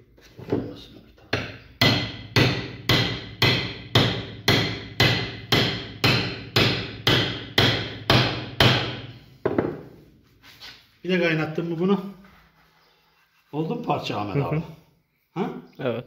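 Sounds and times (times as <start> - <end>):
hammer striking metal rod: 1.4 - 9.1.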